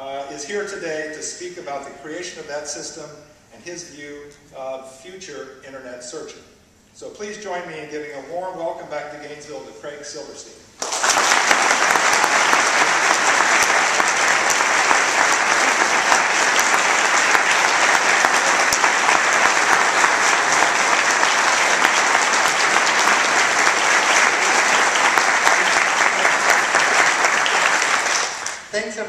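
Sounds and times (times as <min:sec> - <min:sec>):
audience applauding: 0:10.8 - 0:28.7.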